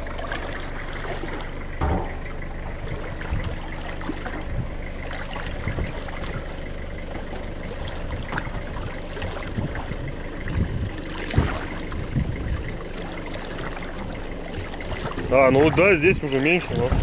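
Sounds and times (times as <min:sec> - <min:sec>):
low engine hum: 0:00.0 - 0:17.0
river water trickling and lapping: 0:00.0 - 0:17.0
dull knock: 0:01.8 - 0:02.4.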